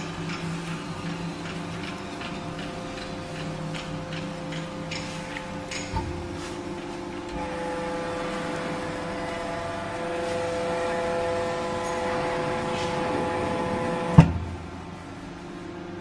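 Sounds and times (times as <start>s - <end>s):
hydraulic pump whining: 0.0s - 15.6s.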